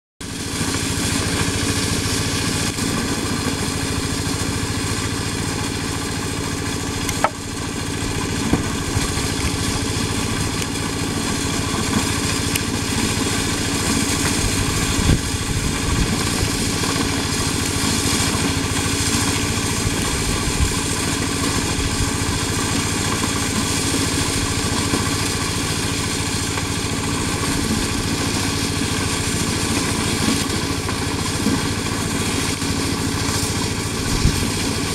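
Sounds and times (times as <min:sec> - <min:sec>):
corn sheller engine droning: 0:00.2 - 0:34.9.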